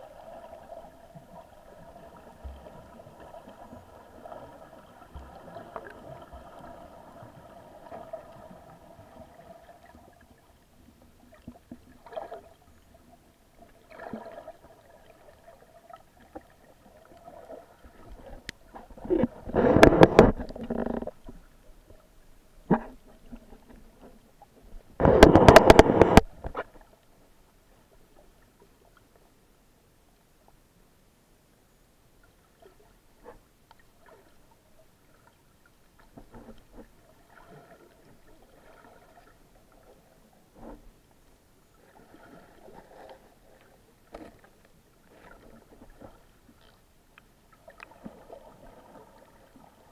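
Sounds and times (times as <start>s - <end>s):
muffled underwater sloshing: 0.0s - 29.4s, 32.2s - 49.9s
short knocks and clicks: 19.6s - 21.1s, 25.0s - 26.6s.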